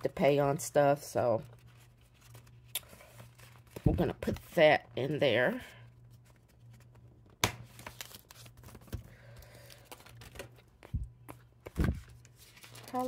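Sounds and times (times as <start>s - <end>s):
paper shuffling and rustling: 1.2s - 4.7s, 7.7s - 13.0s.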